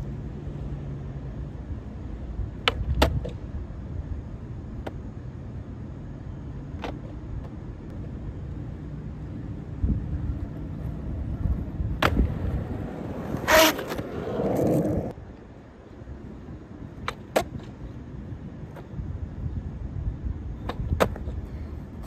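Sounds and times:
skateboard wheels rolling on asphalt: 0.0s - 22.0s
skateboard clicks: 2.5s - 3.5s, 4.8s - 5.0s, 6.7s - 7.6s, 10.8s - 15.5s, 16.9s - 18.0s, 20.6s - 22.0s
skateboard clacking: 10.5s - 15.1s
skateboard cracking: 12.0s - 15.1s.

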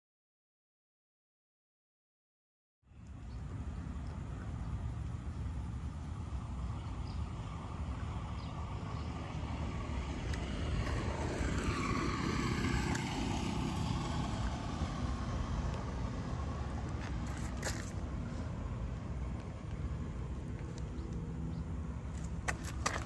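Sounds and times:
vehicle passing: 3.2s - 23.0s.

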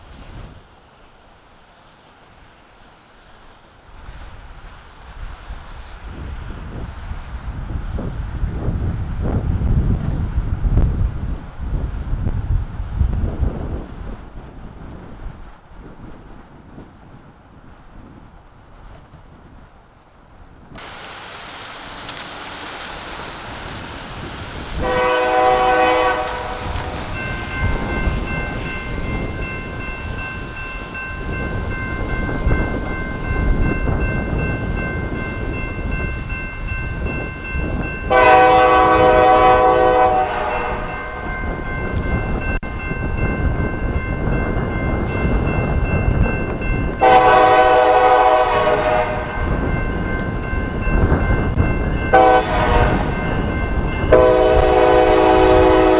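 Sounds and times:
engine and rail rumble: 0.0s - 55.9s
locomotive air horn blasts: 24.8s - 27.2s, 38.1s - 41.2s, 47.0s - 49.4s, 52.1s - 53.2s, 54.1s - 55.9s.

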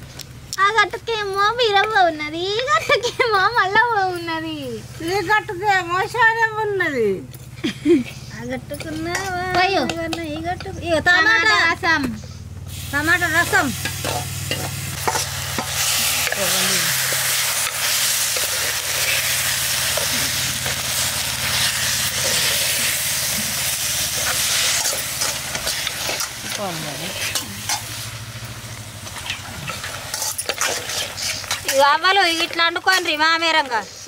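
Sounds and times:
puree sizzling in hot oil: 12.7s - 34.0s
ladle scraping a pot: 29.0s - 33.2s.

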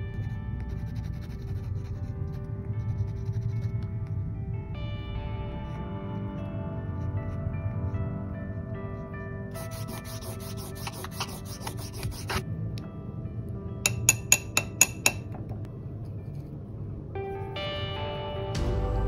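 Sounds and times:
soft background music: 0.0s - 19.0s
pen scratching on paper: 0.2s - 4.2s, 8.9s - 12.4s
paintbrush clinking against ceramic cup: 13.9s - 15.4s.

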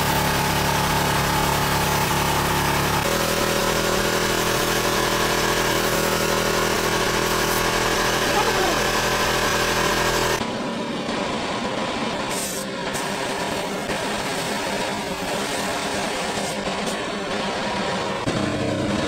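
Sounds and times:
paint spray gun hissing: 0.0s - 10.4s, 12.3s - 17.0s
motor running: 0.0s - 10.6s.

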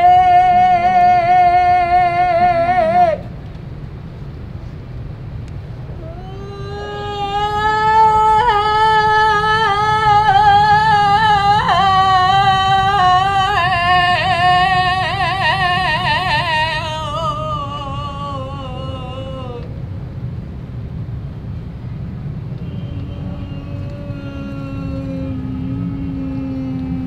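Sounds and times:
steady low rumble: 0.0s - 27.0s
voice wailing long note: 5.9s - 19.7s, 22.6s - 27.0s.

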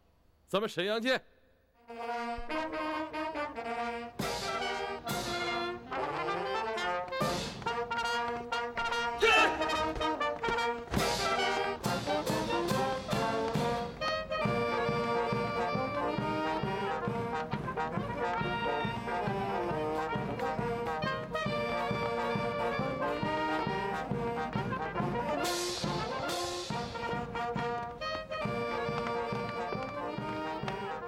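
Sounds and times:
brass band playing: 1.8s - 31.0s
steady drum beat: 7.1s - 8.0s, 9.2s - 31.0s.

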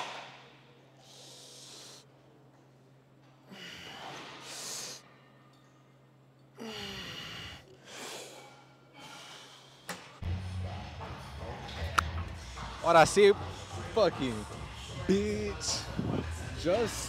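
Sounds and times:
man breathing hard: 1.0s - 2.1s, 6.6s - 9.9s
steady low hum: 5.0s - 17.0s.

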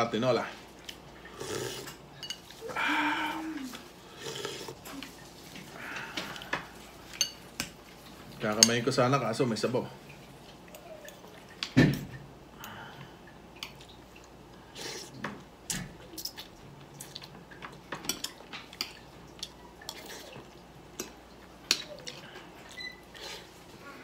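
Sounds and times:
mouth sounds of eating: 2.6s - 6.9s, 10.6s - 11.6s, 19.4s - 24.0s.

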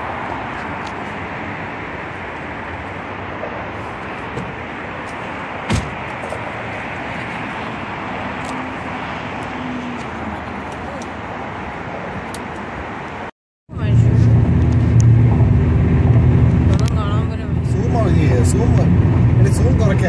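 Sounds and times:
car road and wind noise: 0.0s - 20.0s
sharp knock: 5.7s - 6.0s.

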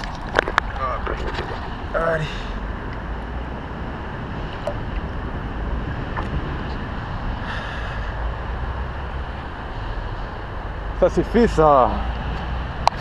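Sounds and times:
water sloshing: 0.0s - 1.9s, 4.4s - 6.9s.

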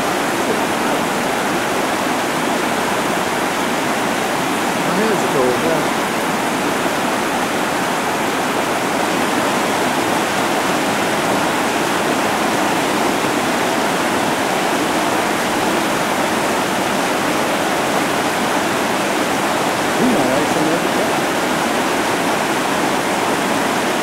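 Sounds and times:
water rushing over rocks: 0.0s - 24.0s.

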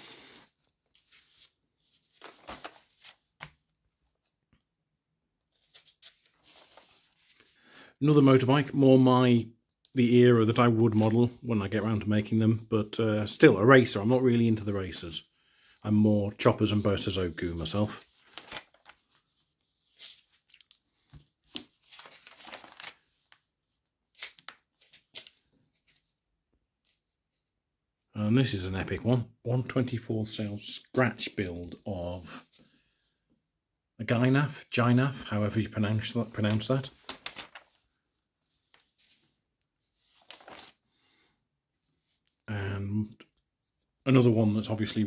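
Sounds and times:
magazine pages turning: 0.1s - 4.4s, 5.5s - 7.5s, 10.5s - 12.3s, 16.4s - 26.2s, 35.9s - 40.9s.

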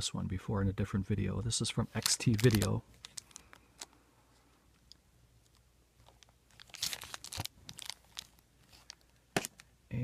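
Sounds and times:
plastic sleeve crinkling: 1.8s - 4.0s, 4.7s - 9.7s.

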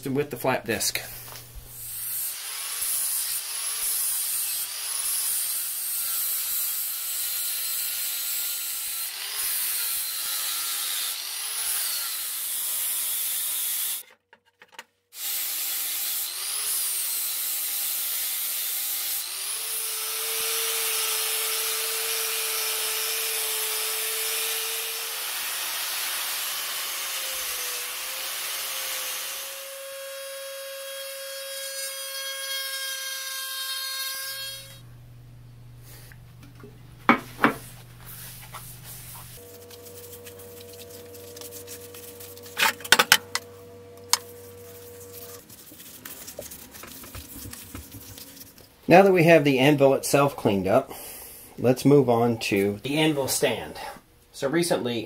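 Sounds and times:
angle grinder grinding steel: 1.2s - 14.0s, 15.2s - 34.8s.

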